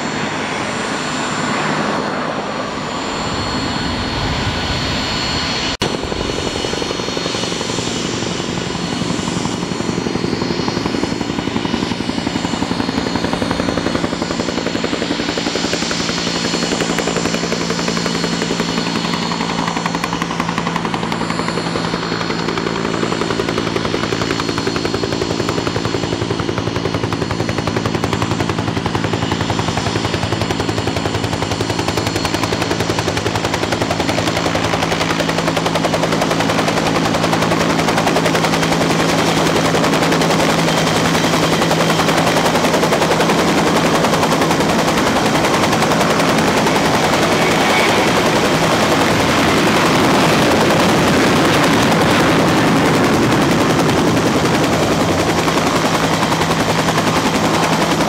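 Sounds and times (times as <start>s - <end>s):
aircraft engines roaring: 0.0s - 58.0s
whining tones: 44.9s - 50.4s.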